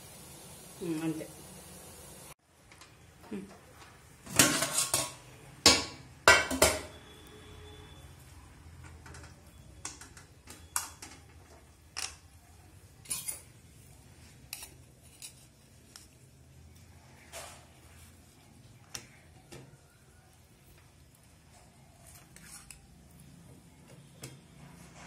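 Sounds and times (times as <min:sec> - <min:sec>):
metal pot lid clanging: 0:04.3 - 0:06.9.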